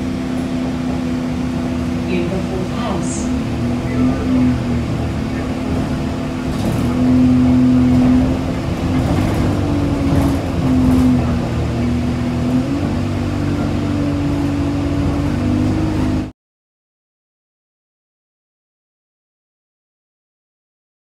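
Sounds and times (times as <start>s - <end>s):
vehicle engine and road noise: 0.0s - 16.3s.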